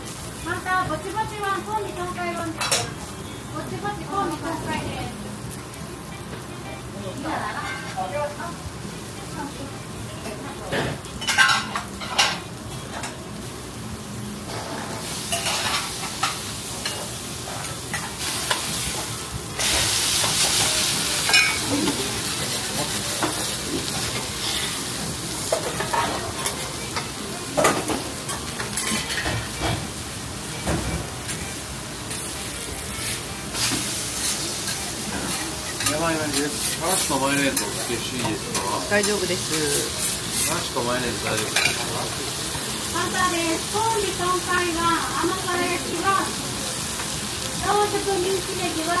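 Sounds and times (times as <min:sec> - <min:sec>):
food sizzling on griddle: 0:00.0 - 0:49.0.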